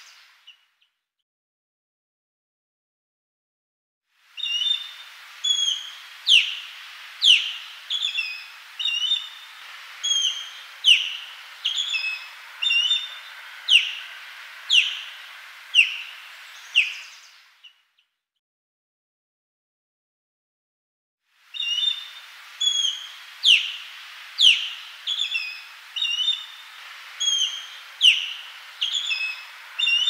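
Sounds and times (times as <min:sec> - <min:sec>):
faint background hiss: 0:00.0 - 0:00.8, 0:04.1 - 0:18.0, 0:21.3 - 0:30.0
osprey calling: 0:04.4 - 0:17.8, 0:21.5 - 0:30.0.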